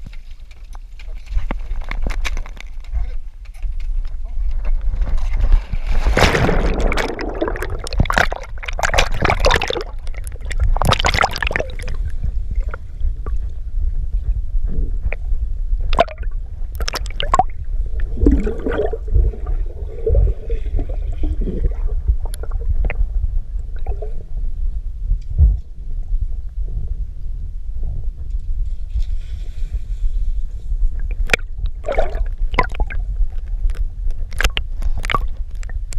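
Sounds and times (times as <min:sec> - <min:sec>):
underwater rumble and gurgling: 0:00.0 - 0:35.9
pool water splashing: 0:06.0 - 0:12.1.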